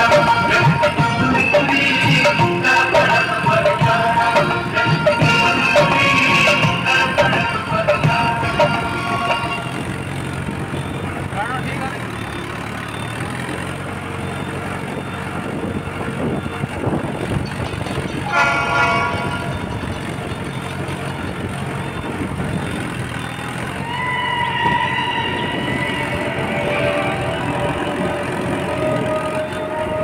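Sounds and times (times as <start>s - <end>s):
horn honk: 0.0s - 11.0s, 18.2s - 19.9s, 24.2s - 30.0s
steady higher tone: 0.0s - 11.8s, 23.9s - 30.0s
tractor diesel engine running: 0.0s - 30.0s.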